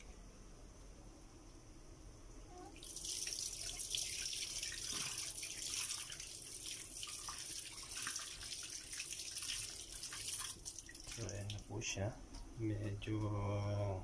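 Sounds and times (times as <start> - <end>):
tap water pouring into steel sink: 2.8 - 11.7.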